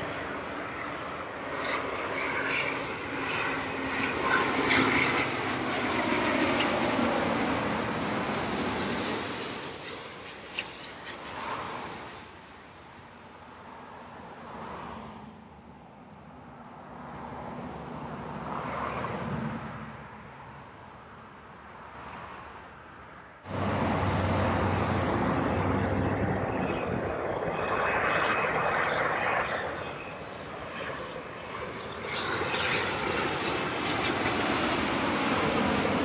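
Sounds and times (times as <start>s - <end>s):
airliner engines rushing: 0.0s - 22.5s, 23.4s - 36.0s
deep engine rumble: 23.5s - 27.2s.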